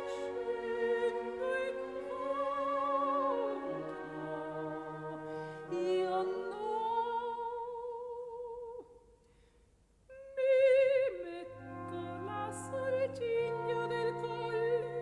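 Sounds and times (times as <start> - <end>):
operatic singing with held notes: 0.0 - 7.9, 11.0 - 15.0.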